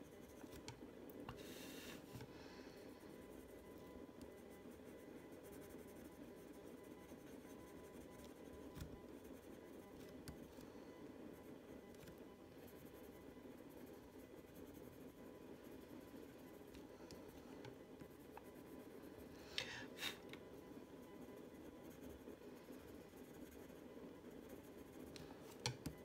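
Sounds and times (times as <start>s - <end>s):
pencil scratching on paper: 21.3s - 25.1s.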